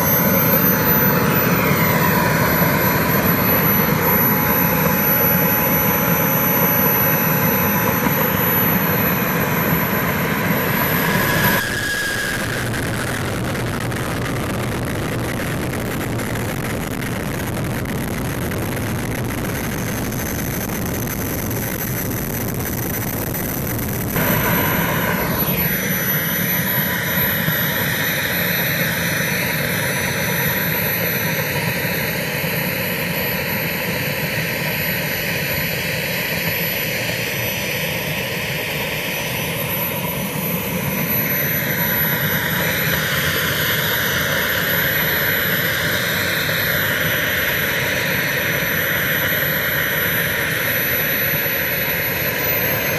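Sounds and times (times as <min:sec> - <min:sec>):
exhaust rush: 0:00.0 - 0:28.9
model jet turbine whine: 0:00.0 - 0:52.9.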